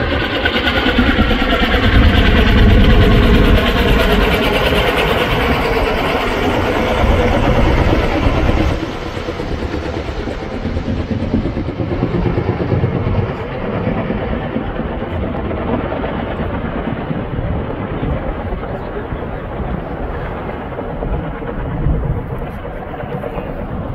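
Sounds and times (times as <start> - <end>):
helicopter engine and rotor: 0.0 - 23.9.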